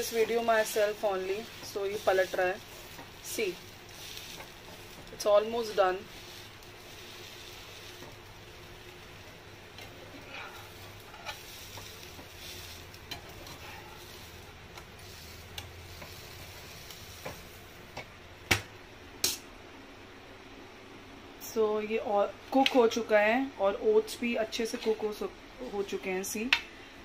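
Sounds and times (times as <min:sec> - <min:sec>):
omelette frying: 0:00.0 - 0:19.1
metal spatula scraping pan: 0:09.8 - 0:14.2.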